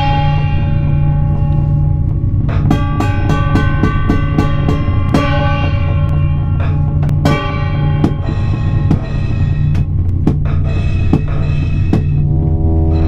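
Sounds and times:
drums hitting: 2.1s - 12.6s.

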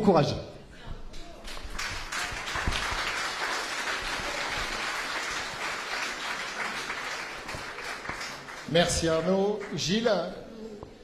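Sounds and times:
audience applauding: 1.4s - 10.0s.

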